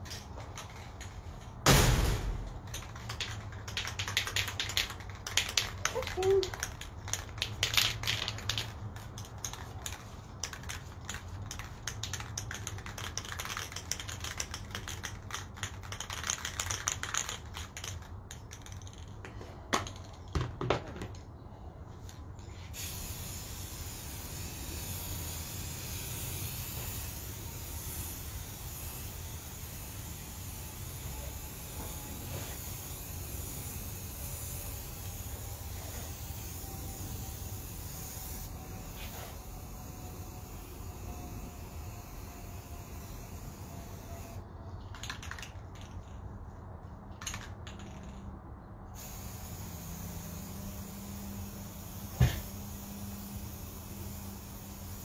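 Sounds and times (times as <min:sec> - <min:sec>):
spray can ball rattling: 0:00.0 - 0:21.2, 0:22.7 - 0:48.4, 0:49.0 - 0:55.0
spray hiss: 0:22.6 - 0:44.4, 0:49.0 - 0:55.0.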